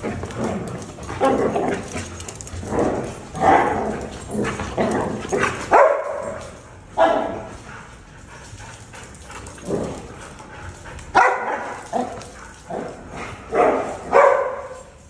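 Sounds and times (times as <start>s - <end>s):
dogs barking: 0.0s - 7.6s, 11.0s - 15.0s.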